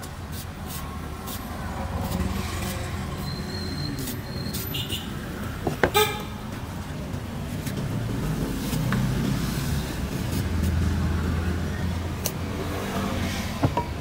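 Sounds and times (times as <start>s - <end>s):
street traffic rumble: 0.0s - 14.0s
vehicle horn toot: 4.6s - 5.1s, 5.9s - 6.4s.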